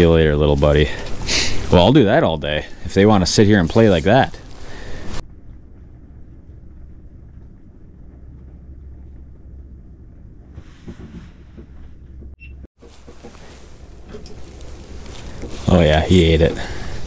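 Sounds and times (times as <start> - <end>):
faint rustle: 2.6 - 5.2, 12.8 - 17.0.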